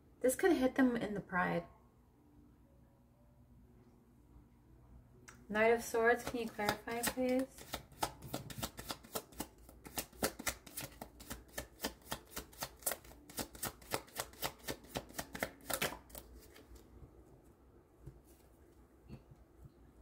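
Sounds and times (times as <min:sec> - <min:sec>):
cards being shuffled: 0:06.2 - 0:16.9.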